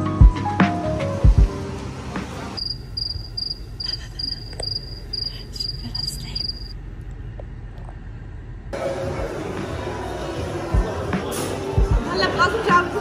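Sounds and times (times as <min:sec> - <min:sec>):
background music: 0:00.0 - 0:02.6, 0:08.8 - 0:13.0
cricket chirping: 0:02.6 - 0:06.8.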